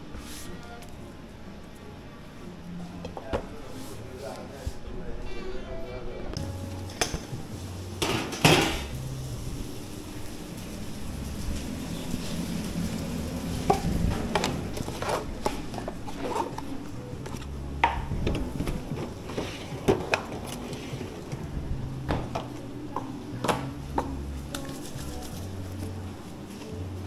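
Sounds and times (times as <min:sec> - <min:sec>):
utensils and dishes clattering: 0:08.0 - 0:09.0, 0:11.9 - 0:21.4.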